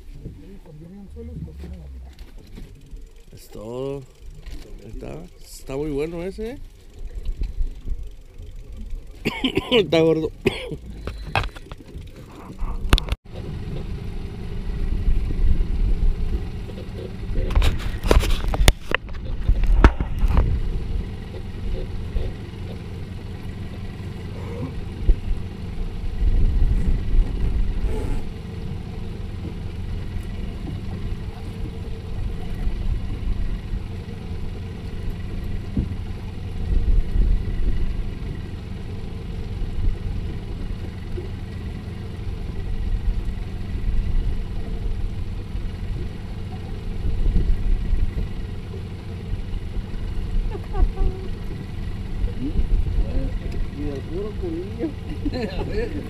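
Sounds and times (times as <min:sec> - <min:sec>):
boat motor idling: 0:00.0 - 0:56.0
sharp knocks and rustles: 0:16.2 - 0:24.0, 0:34.9 - 0:38.4.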